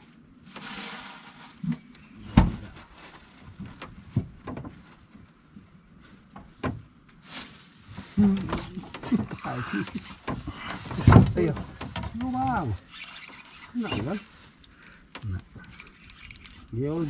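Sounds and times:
gear knocking in boat: 8.4s - 14.2s.

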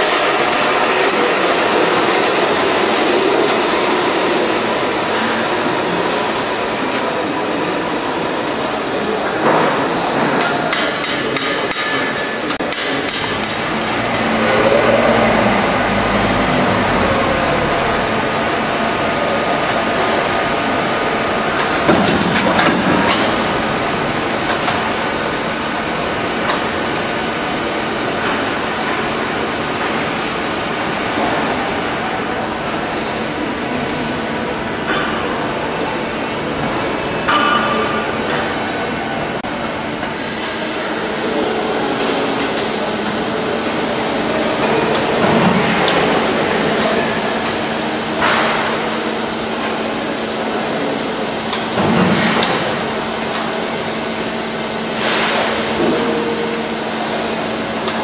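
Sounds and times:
machine mechanical drone: 0.0s - 58.0s.

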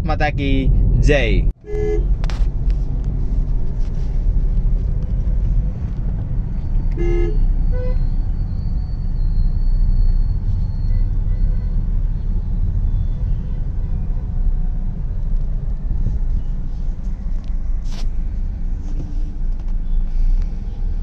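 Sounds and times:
road traffic rumble: 0.0s - 21.0s
vehicle horn toots: 1.6s - 2.1s, 6.9s - 8.0s.

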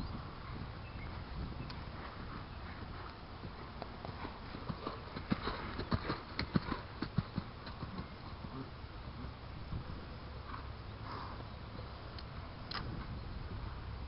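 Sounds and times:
horse hoofbeats on gravel: 1.9s - 8.4s.

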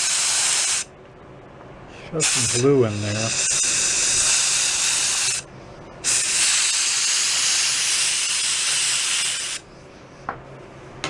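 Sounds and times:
compressed air blow gun hissing: 0.0s - 0.9s, 2.2s - 9.6s.

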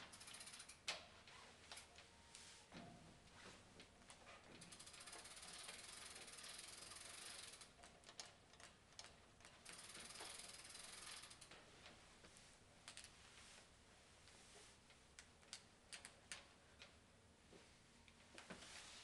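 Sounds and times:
saddle springs clicking and squeaking: 4.1s - 8.7s, 9.4s - 11.6s.

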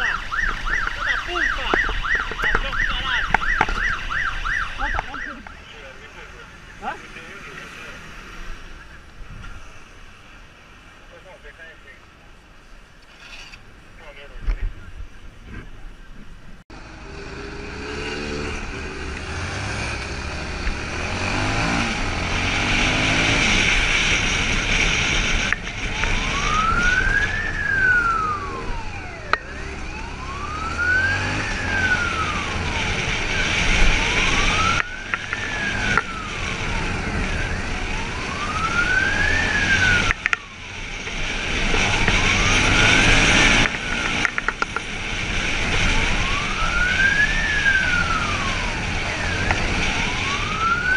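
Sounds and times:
police siren wailing: 0.0s - 5.9s, 18.7s - 50.9s
motorcycle engine revving: 16.7s - 50.9s.

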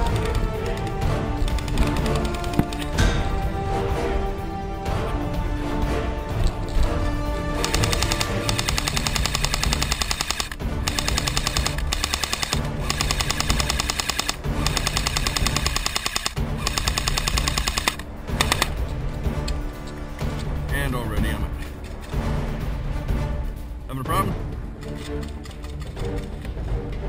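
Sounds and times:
airsoft rifle full auto fire: 7.6s - 18.7s.

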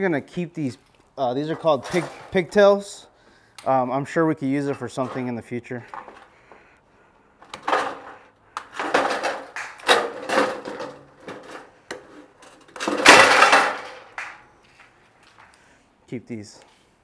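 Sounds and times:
objects clattering and rustling: 1.4s - 2.5s, 4.7s - 6.6s, 7.4s - 15.5s.

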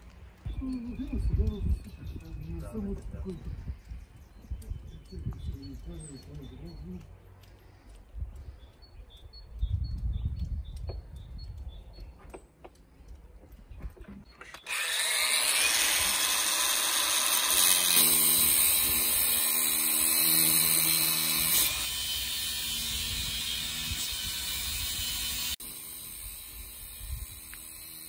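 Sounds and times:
power tool whining: 14.4s - 28.0s.

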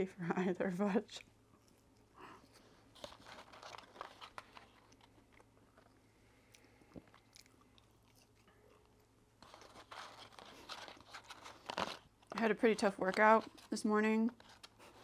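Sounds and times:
soft crunches of chewing fries: 1.1s - 12.4s.

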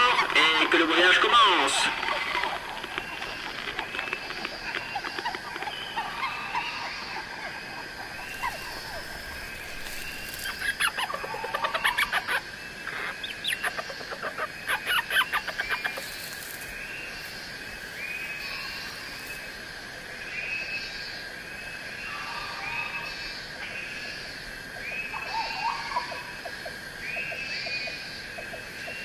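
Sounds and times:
rapid clucking bird calls: 0.0s - 19.6s
birds chirping: 0.0s - 29.0s.

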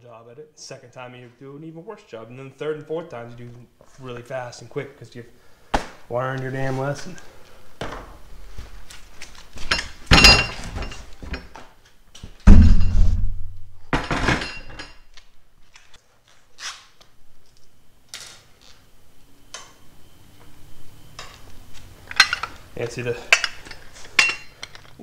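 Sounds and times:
heavy wooden thunk: 12.5s - 14.3s.

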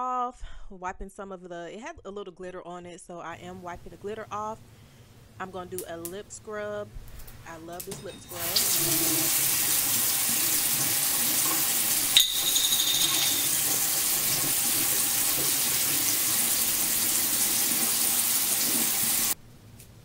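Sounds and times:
sink tap running: 7.8s - 19.4s
short clink: 12.2s - 13.6s.

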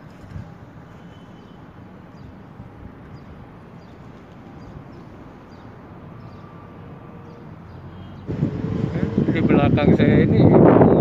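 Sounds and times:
distant road traffic: 0.0s - 11.0s
small birds chirping: 3.1s - 6.6s.

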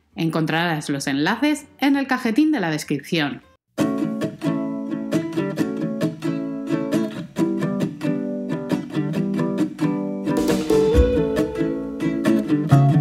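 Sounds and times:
strummed acoustic guitar: 3.8s - 13.0s.

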